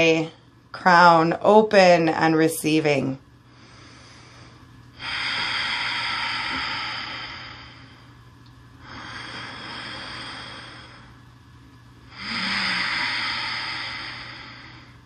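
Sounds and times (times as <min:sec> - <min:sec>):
faint low hum: 0:00.0 - 0:15.0
deep hissing breaths: 0:03.4 - 0:11.4, 0:12.1 - 0:15.0.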